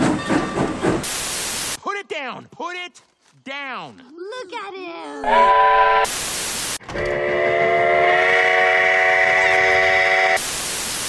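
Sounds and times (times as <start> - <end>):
static hiss: 1.0 - 1.8, 6.0 - 6.8, 10.3 - 11.0
steam locomotive whistle: 5.3 - 10.6.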